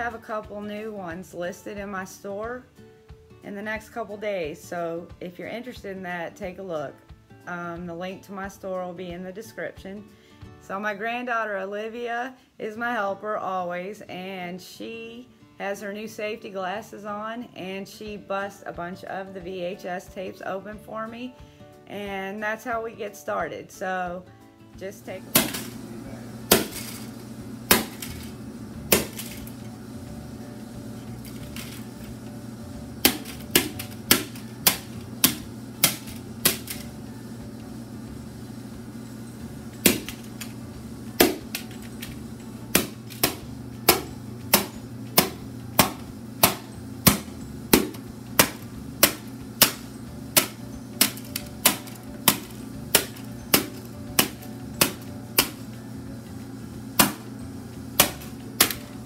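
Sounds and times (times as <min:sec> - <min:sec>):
hammer striking plastic cases: 0:25.3 - 0:25.8, 0:26.5 - 0:27.1, 0:27.7 - 0:28.3, 0:28.9 - 0:29.5, 0:33.0 - 0:36.8, 0:41.2 - 0:49.8, 0:50.4 - 0:55.6, 0:58.0 - 0:59.0.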